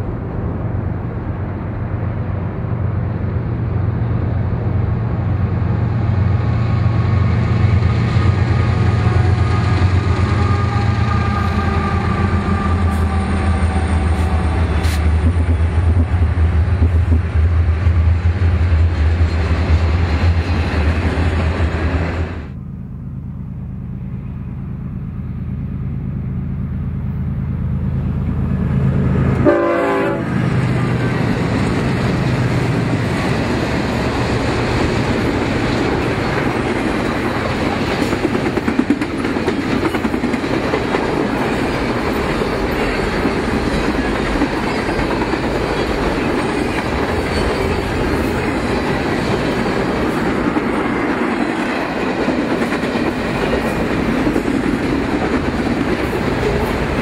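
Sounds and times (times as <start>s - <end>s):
train wheels clattering on rails: 7.0s - 22.4s, 30.3s - 57.0s
horn blast: 29.4s - 30.4s.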